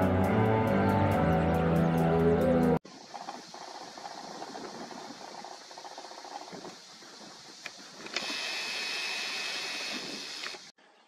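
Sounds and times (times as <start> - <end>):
wind rustling through reeds: 2.8 - 10.7.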